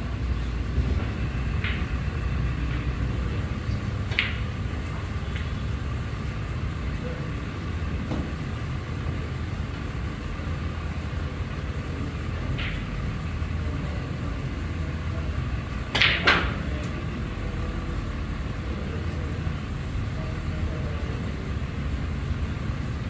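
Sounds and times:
steady low hum: 0.0 - 23.0
cue striking ball: 0.9 - 5.7, 8.0 - 8.6, 12.4 - 12.9, 15.8 - 16.7
snooker balls clicking: 1.0 - 5.7, 12.3 - 13.0, 15.8 - 16.9.

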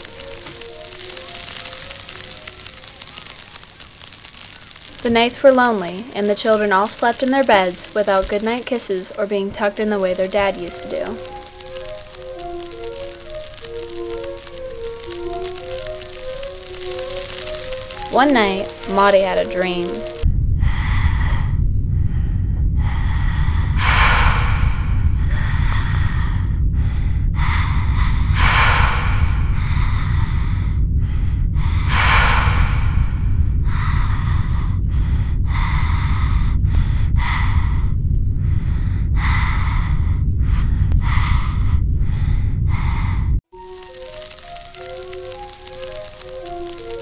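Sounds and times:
low rumble: 19.6 - 43.5
heavy rapid breathing: 20.6 - 43.4.

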